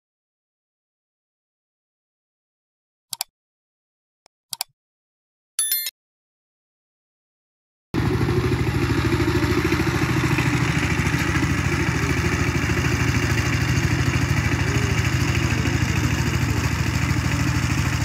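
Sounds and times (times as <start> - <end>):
diesel tiller engine running: 8.0 - 18.0.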